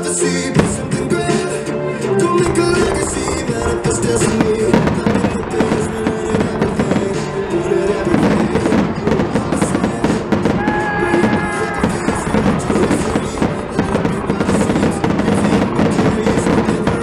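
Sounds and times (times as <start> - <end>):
fireworks bursting and crackling: 0.0 - 17.0
music playing: 0.0 - 17.0.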